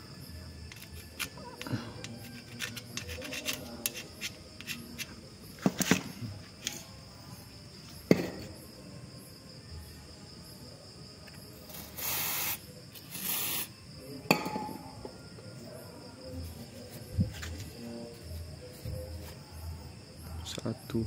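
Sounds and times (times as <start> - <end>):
aerosol spray hisses: 11.7 - 13.8.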